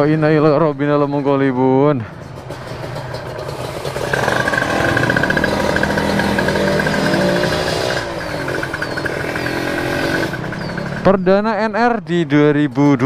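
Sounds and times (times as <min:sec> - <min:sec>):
motorcycle engine revving: 0:02.2 - 0:11.3.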